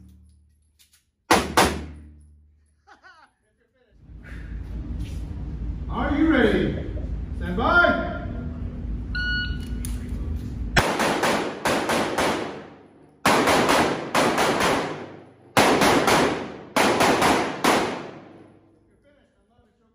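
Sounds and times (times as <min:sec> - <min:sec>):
handgun shots echoing indoors: 0:00.0 - 0:02.5, 0:10.8 - 0:18.8.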